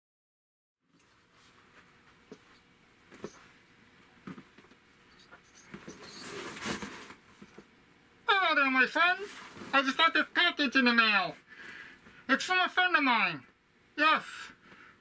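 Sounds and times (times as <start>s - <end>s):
cardboard rustling: 5.7s - 7.6s.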